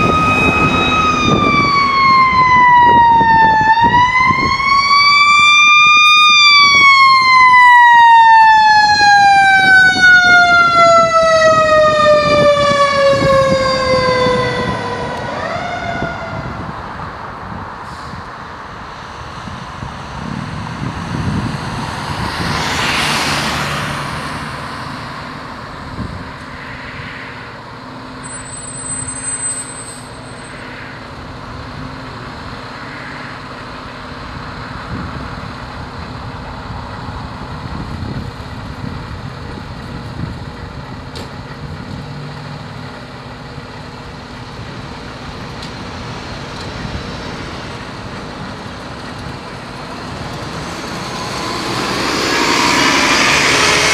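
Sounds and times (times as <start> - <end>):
fire engine diesel idling: 33.5 - 50.8
loud whoosh: 50.0 - 53.9.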